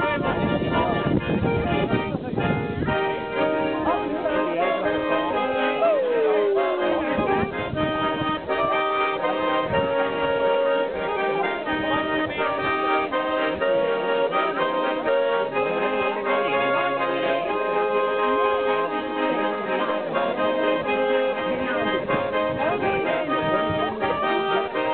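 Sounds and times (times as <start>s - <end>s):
accordion playing folk tune: 0.0s - 24.9s.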